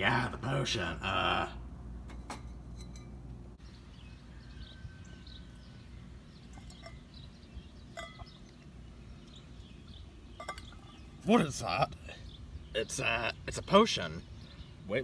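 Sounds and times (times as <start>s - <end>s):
small birds chirping: 3.6s - 15.0s
light clinks: 6.5s - 7.2s, 7.9s - 8.6s, 10.4s - 11.0s.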